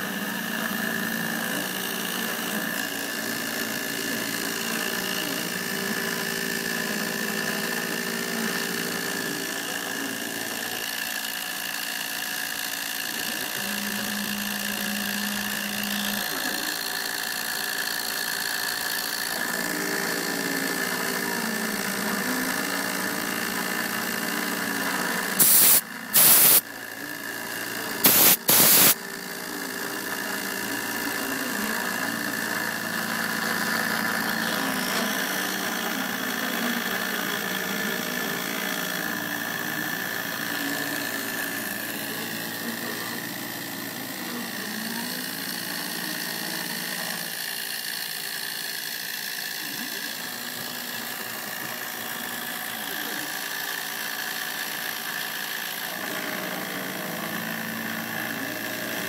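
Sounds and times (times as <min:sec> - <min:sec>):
router spindle high tone: 0:00.0 - 0:59.0
stepper motors whining: 0:00.0 - 0:59.0
loud noise bursts: 0:28.0 - 0:29.0.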